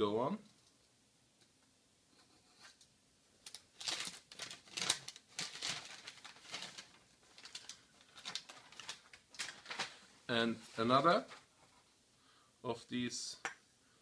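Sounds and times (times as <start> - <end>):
packing material rustling: 3.4 - 11.6.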